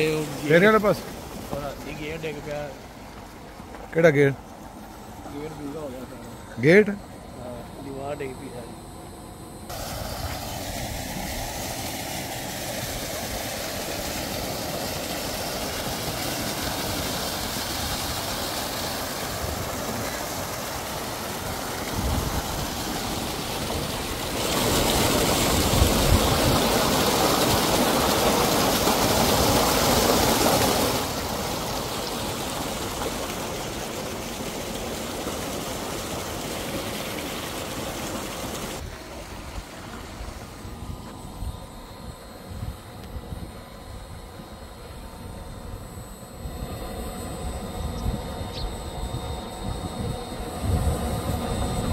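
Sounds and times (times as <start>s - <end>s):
water gushing from a pipe: 0.0s - 3.6s, 9.7s - 40.6s.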